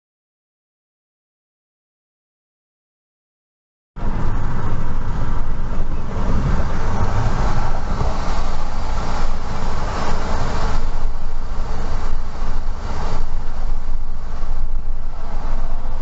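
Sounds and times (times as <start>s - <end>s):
car engine low rumble: 4.0s - 16.0s.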